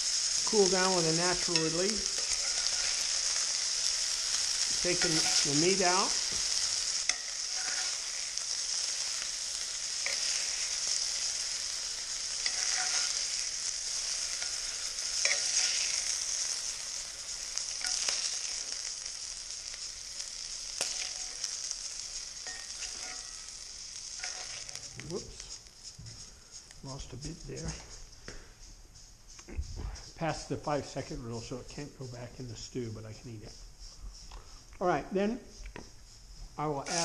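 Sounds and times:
meat sizzling in frying pan: 0.0 - 27.7, 36.6 - 37.0.

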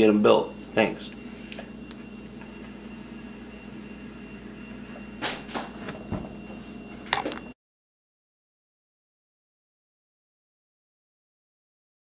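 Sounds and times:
steady low hum: 0.0 - 7.6.

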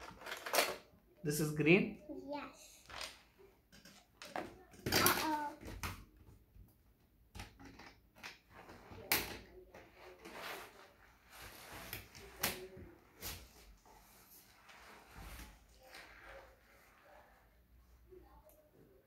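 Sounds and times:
small objects clicking and knocking: 0.0 - 0.9.

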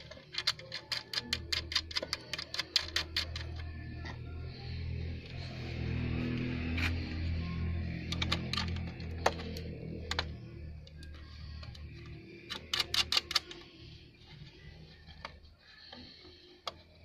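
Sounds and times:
metal number plate clicking: 0.0 - 3.6, 12.4 - 13.6.

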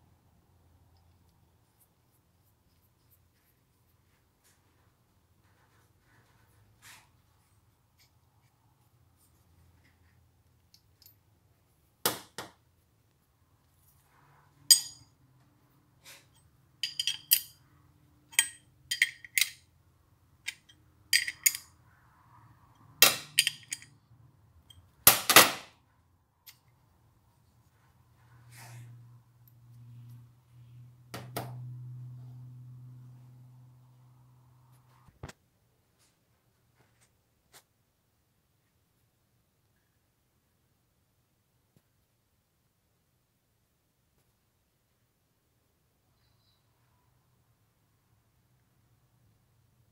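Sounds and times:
metal parts clinking: 14.7 - 15.0, 16.8 - 17.6, 18.3 - 19.7, 20.4 - 21.8, 23.0 - 24.0.

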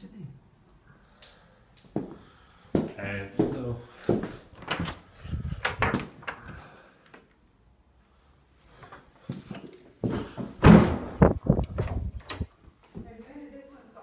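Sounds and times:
door knocks and thuds: 10.6 - 12.4
door clunks: 10.6 - 12.5.

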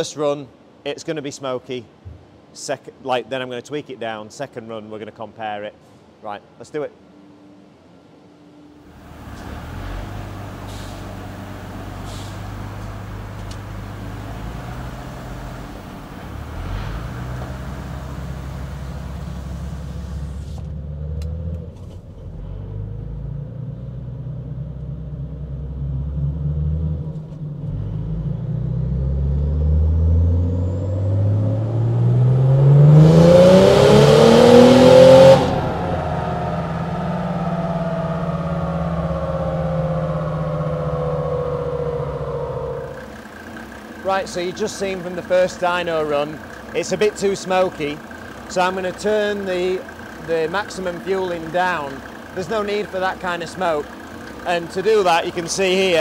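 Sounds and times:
diesel engine revving on a dyno: 8.9 - 24.8, 25.5 - 56.0.

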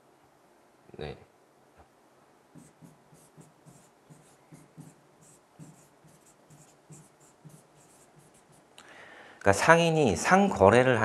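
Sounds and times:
marker scratching on whiteboard: 2.5 - 8.7.

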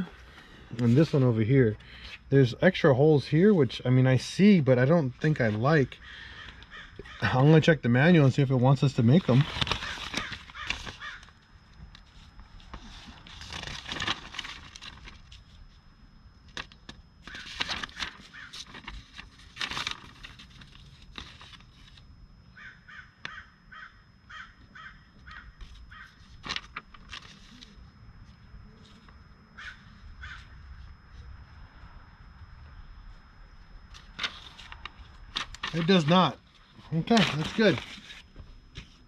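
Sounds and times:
bird calling: 6.0 - 7.4, 9.8 - 11.3, 17.3 - 17.5, 18.2 - 18.6, 22.5 - 26.2, 29.5 - 30.6.

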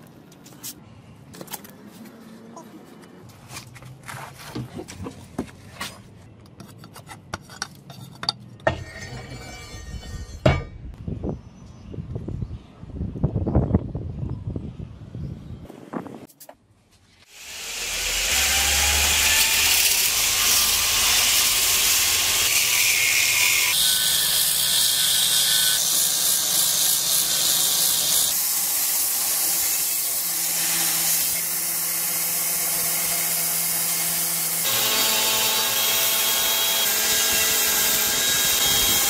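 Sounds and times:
belt grinder sanding metal: 17.4 - 39.0.

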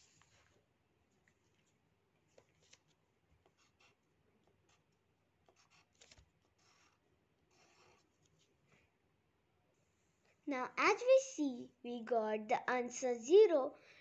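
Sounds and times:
pen scratching on paper: 2.4 - 8.6.

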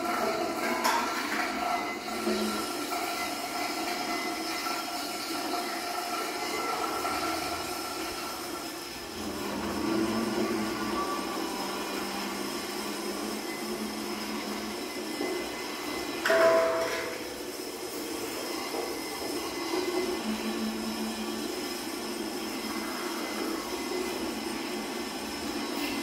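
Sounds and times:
noisy electronic drone: 6.1 - 26.0.

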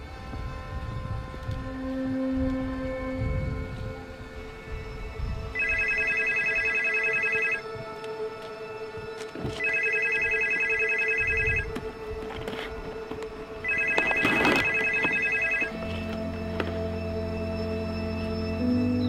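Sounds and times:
low music drone: 0.0 - 19.0
telephone ringing: 5.6 - 7.7, 9.6 - 11.8, 13.6 - 16.4.

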